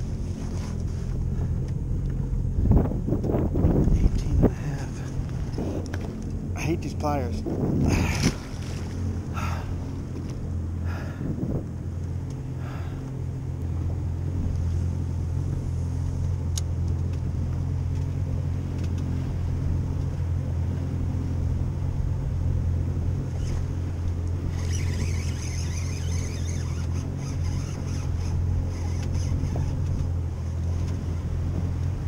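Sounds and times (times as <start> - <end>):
boat engine idling: 0.0 - 32.0
sharp tick: 16.5 - 17.2.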